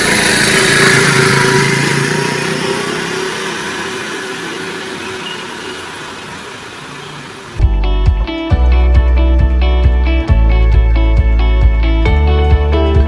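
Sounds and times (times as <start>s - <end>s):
motor scooter engine hum: 0.0s - 8.1s.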